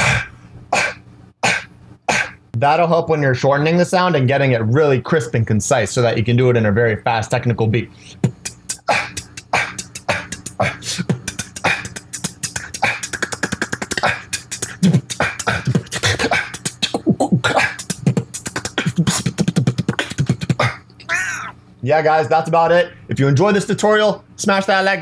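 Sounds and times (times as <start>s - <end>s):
man beatboxing: 0.0s - 2.4s, 8.0s - 20.9s.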